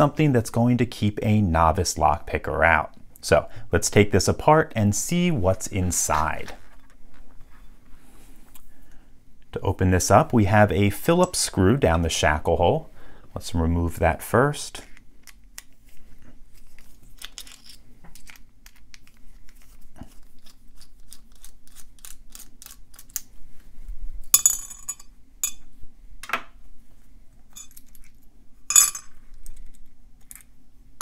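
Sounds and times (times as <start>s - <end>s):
metal parts clinking: 17.2s - 18.4s, 24.4s - 25.6s, 27.5s - 30.5s.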